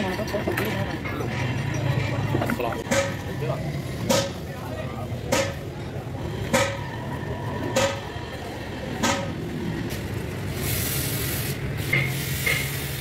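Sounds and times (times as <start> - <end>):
sharp metallic knocks: 2.8 - 3.4, 4.0 - 4.5, 5.2 - 5.7, 6.4 - 7.0, 7.6 - 8.1, 9.0 - 9.4
hiss: 10.5 - 13.0.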